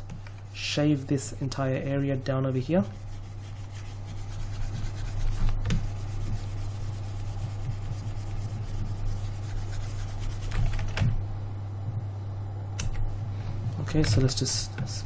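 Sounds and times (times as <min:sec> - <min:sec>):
steady low hum: 0:00.0 - 0:15.0
rubbing and scratching at desk: 0:00.4 - 0:11.0.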